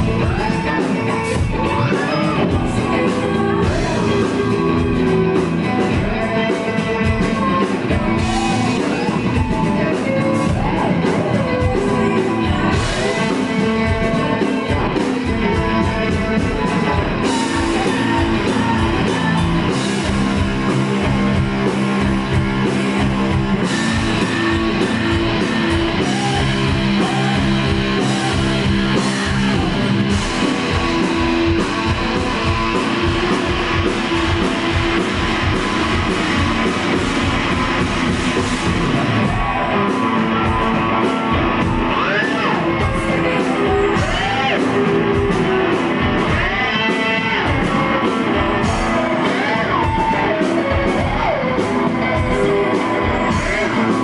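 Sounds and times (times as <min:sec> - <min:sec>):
woman singing lead: 0:00.0 - 0:23.0
live rock band playing: 0:00.0 - 0:54.0.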